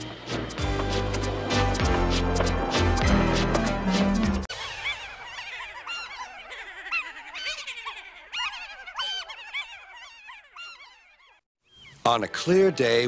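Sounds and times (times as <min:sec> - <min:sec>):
high-pitched voices laughing: 0:04.5 - 0:11.4.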